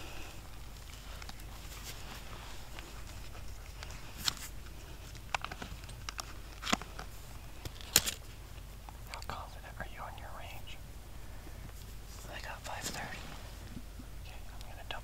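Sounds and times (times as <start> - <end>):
low steady rumble: 0.0 - 15.0
sharp crunches and clicks: 0.5 - 9.4.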